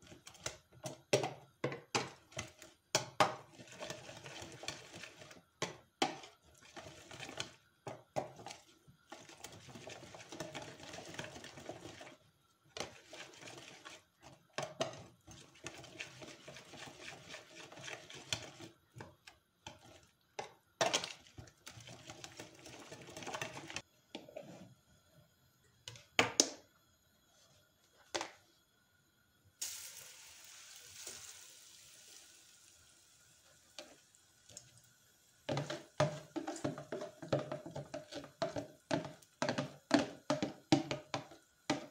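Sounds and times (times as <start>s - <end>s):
utensil scraping and stirring in bowl: 0.0s - 24.8s, 35.5s - 41.9s
steady hiss: 26.9s - 35.5s.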